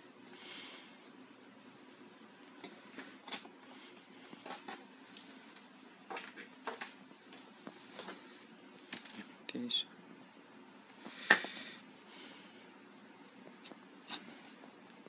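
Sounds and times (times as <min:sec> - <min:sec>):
small clicks and taps of wires: 0:02.6 - 0:03.5.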